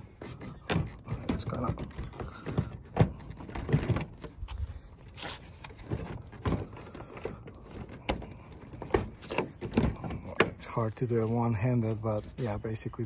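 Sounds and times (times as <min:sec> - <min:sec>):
handling noise: 0:00.0 - 0:13.0
plastic clicks and knocks: 0:00.2 - 0:04.6, 0:05.6 - 0:10.7.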